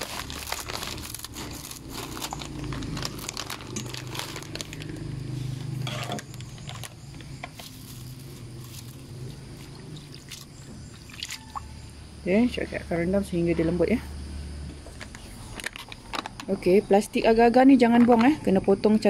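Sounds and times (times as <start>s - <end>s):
scissors snipping plastic packet: 0.0s - 4.9s.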